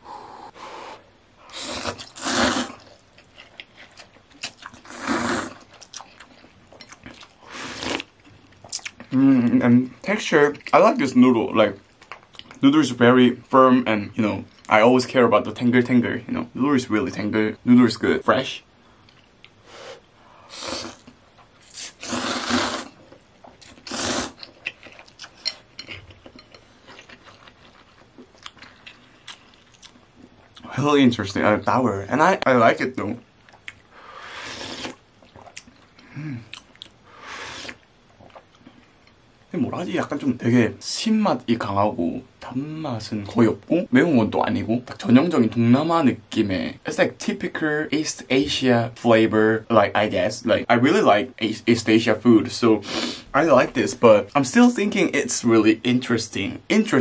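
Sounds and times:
person slurping noodles: 1.5 - 3.0, 4.8 - 5.6, 7.5 - 8.1, 20.5 - 21.1, 21.7 - 23.0, 23.8 - 24.4, 34.2 - 35.0
wet chewing: 1.8 - 4.9.

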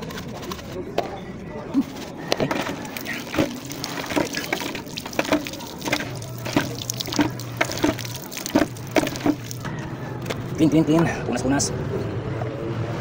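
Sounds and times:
water splashing and dripping: 2.5 - 9.7.

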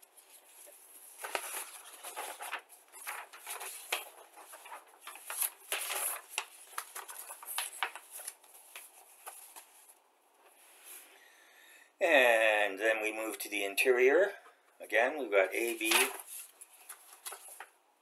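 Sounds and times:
paper rustling and crinkling: 0.0 - 11.0, 15.6 - 17.8.

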